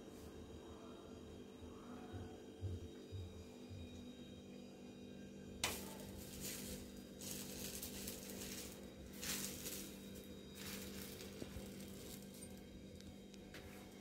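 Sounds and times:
steady low hum: 0.0s - 14.0s
flatbread hissing on griddle: 5.6s - 12.6s.

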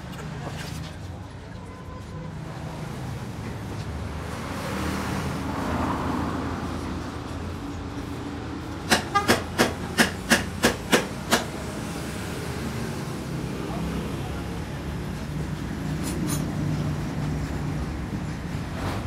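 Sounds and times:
sharp clacks: 8.9s - 11.5s.

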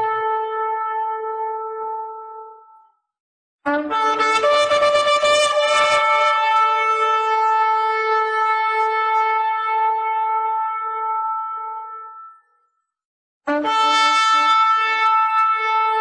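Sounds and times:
horn blast: 13.5s - 16.0s.

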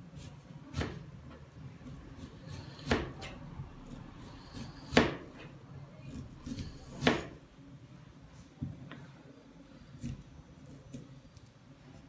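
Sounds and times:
knife chopping on cutting board: 0.2s - 1.4s, 2.2s - 5.5s, 6.1s - 7.4s.

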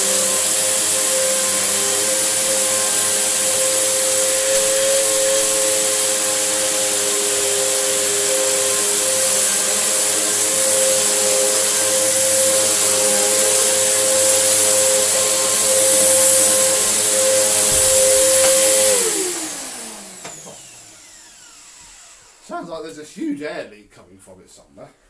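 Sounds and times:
airy hiss: 0.0s - 19.5s
motor winding down: 0.0s - 22.6s
vacuum cleaner motor whine: 0.0s - 22.7s.

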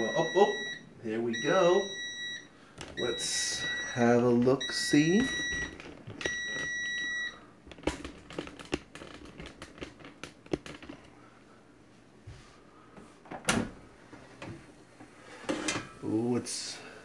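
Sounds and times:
air fryer beep: 0.0s - 7.5s.

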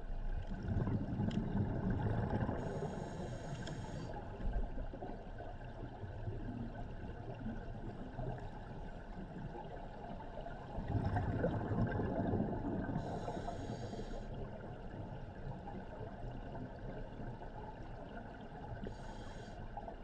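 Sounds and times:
regulator bubbles rushing: 0.5s - 2.9s, 10.7s - 13.0s
muffled underwater noise: 0.6s - 5.4s, 6.4s - 20.0s.

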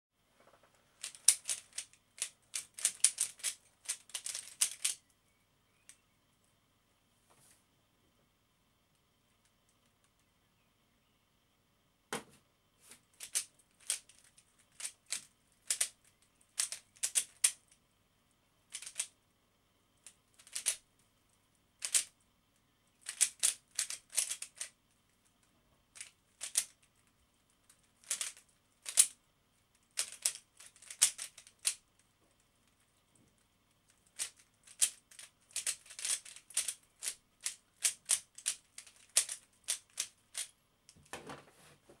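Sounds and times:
speed cube clicking: 1.0s - 5.0s, 13.2s - 17.6s, 18.7s - 19.1s, 20.0s - 20.8s, 21.8s - 22.1s, 23.0s - 24.8s, 26.0s - 26.9s, 27.8s - 29.2s, 29.9s - 31.8s, 34.0s - 40.5s.

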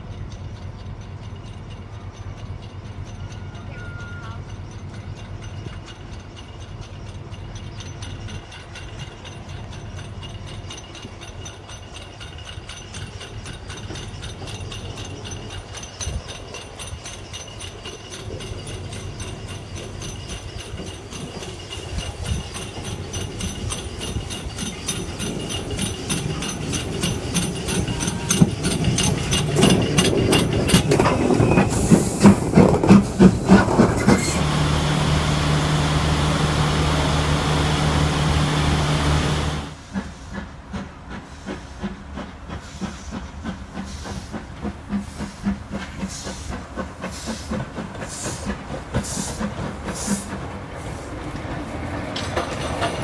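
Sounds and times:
steam locomotive exhaust beats: 0.0s - 53.0s
steam hissing: 3.9s - 53.0s
wheel clatter: 4.7s - 39.8s.

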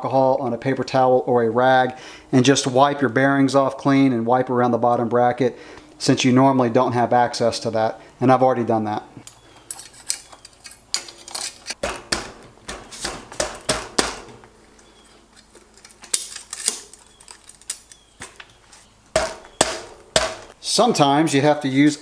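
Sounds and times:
bicycle crank and chain clinking: 9.3s - 11.8s.

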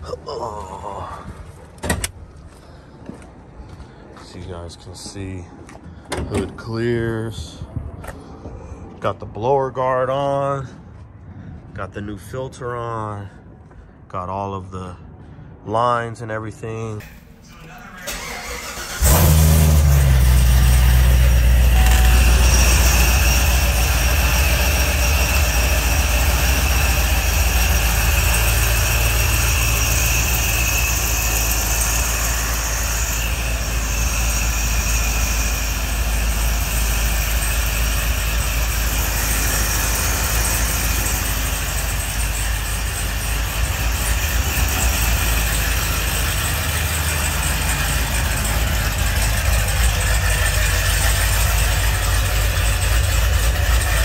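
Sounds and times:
car engine idling: 17.0s - 54.0s.

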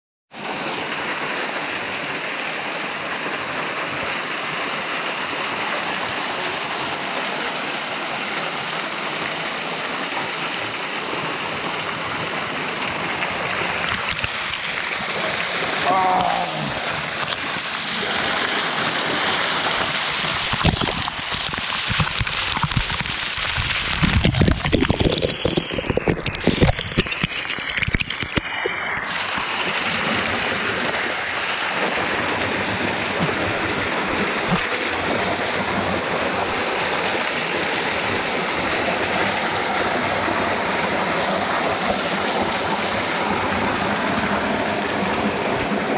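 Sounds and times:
water rushing over rock ledge: 0.3s - 45.9s
muffled knocks and splashes: 19.0s - 28.6s.

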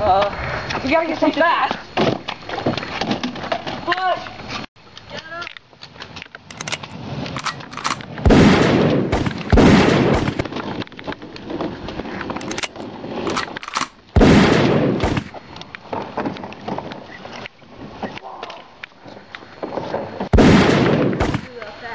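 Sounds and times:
sharp pops: 6.4s - 10.8s, 12.4s - 16.6s, 20.2s - 21.7s
loud gunshots: 7.8s - 10.5s, 14.2s - 15.4s, 20.3s - 21.6s.

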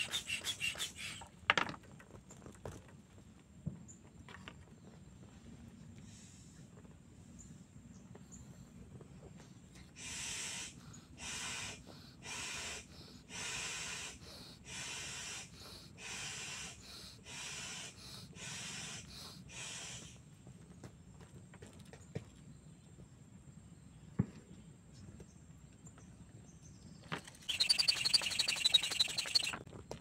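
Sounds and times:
air pump puffs: 0.0s - 1.3s, 27.4s - 29.6s.

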